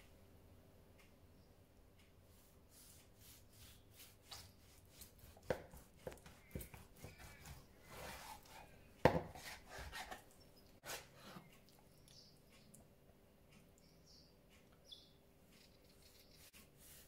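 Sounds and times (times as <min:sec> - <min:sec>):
soft sawing sound: 0:02.4 - 0:08.7, 0:09.3 - 0:10.2.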